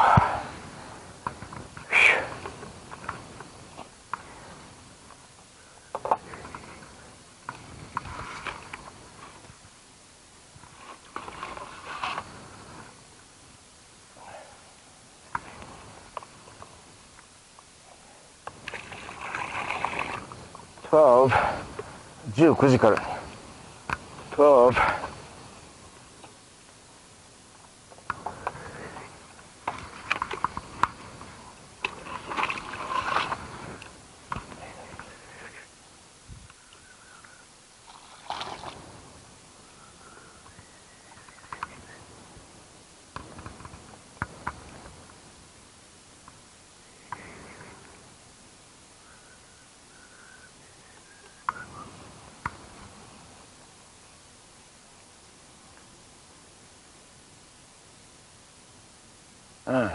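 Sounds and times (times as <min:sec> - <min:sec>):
scraping and rustling: 0:10.6 - 0:13.0.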